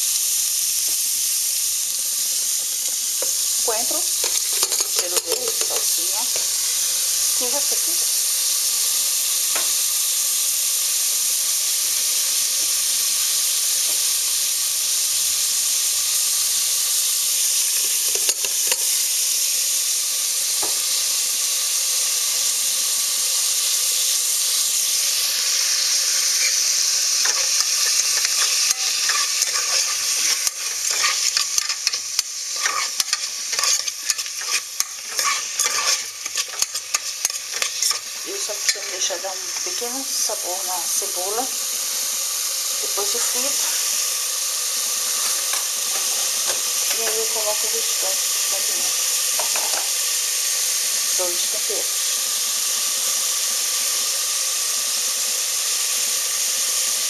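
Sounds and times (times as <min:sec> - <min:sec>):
onions sizzling in oil: 0:00.0 - 0:57.0
plastic spatula scraping a pot: 0:27.2 - 0:38.1.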